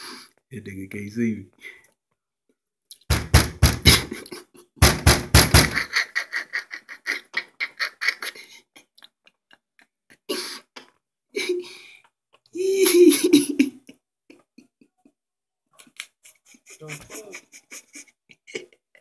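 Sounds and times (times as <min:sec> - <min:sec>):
percussive knocks and taps: 0:03.1 - 0:04.1, 0:04.8 - 0:05.8.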